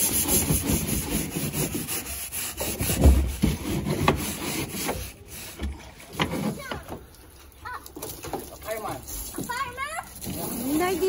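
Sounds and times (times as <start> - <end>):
brush scrubbing car body: 0.0 - 6.8.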